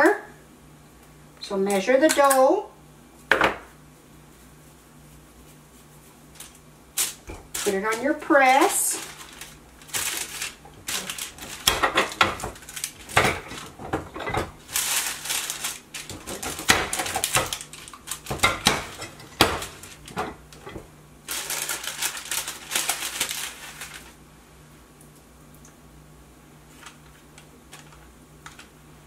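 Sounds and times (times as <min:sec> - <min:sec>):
parchment paper crinkling: 0:05.1 - 0:20.6, 0:21.2 - 0:24.2, 0:26.7 - 0:28.7.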